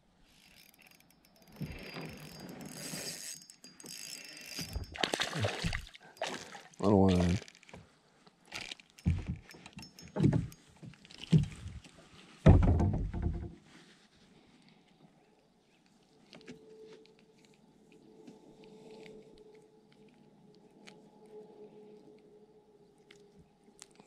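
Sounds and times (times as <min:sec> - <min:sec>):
knocks on a kayak: 0:12.4 - 0:13.5.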